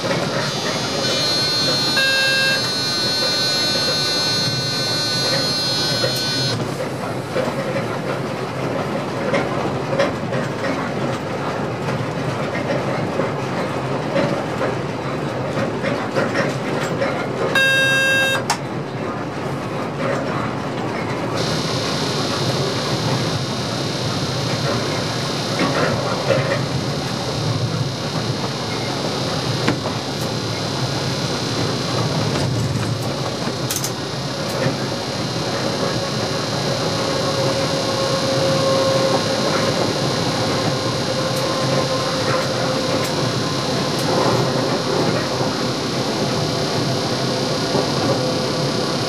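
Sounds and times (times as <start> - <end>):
held electronic tone: 0.0 - 8.2, 17.6 - 18.5, 21.4 - 49.0
train rumble with rail noise: 0.0 - 49.0.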